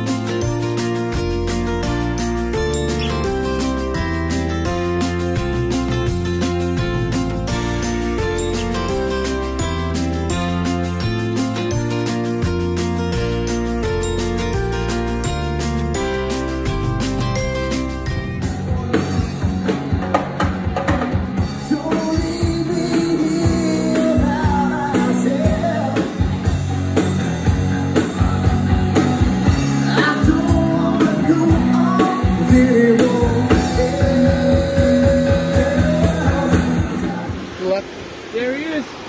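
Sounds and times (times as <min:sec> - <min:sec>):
drum kit: 0:00.0 - 0:37.4
electric guitar: 0:00.0 - 0:37.6
person singing: 0:21.4 - 0:26.6, 0:29.4 - 0:37.3.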